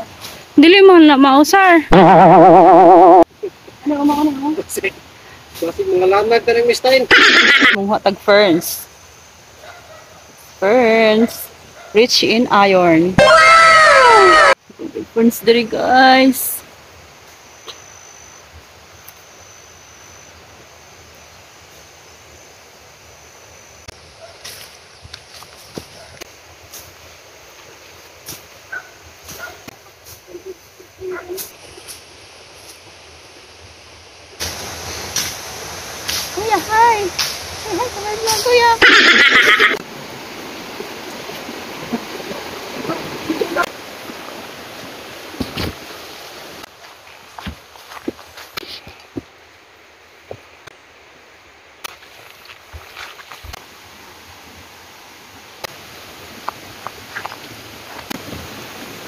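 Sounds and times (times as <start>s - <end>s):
stream running over rocks: 0.0s - 17.8s, 20.3s - 59.0s
even outdoor hiss: 0.0s - 59.0s
rustles: 23.8s - 50.9s, 51.7s - 59.0s
footsteps through ferns and grass: 24.3s - 30.7s, 46.7s - 49.3s, 51.9s - 53.8s
footsteps: 46.7s - 49.3s, 51.8s - 53.6s.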